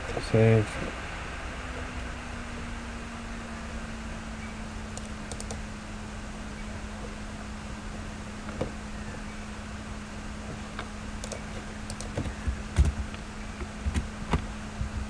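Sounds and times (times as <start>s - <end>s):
low electrical hum: 0.0s - 15.0s
keyboard and mouse clicks: 5.0s - 5.6s, 10.8s - 14.4s.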